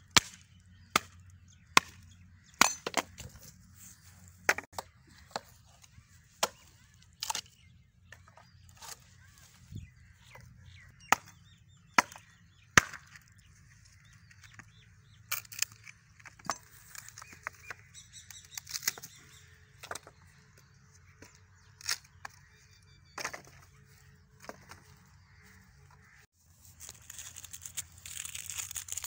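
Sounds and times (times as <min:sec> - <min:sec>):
cleaver chopping firewood: 0:00.0 - 0:03.4, 0:04.4 - 0:05.5, 0:06.3 - 0:09.0, 0:11.0 - 0:13.5.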